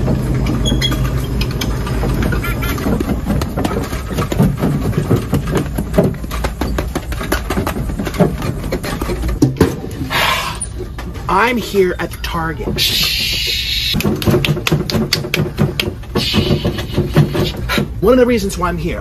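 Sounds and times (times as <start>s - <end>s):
mobility scooter humming: 0.0s - 8.2s.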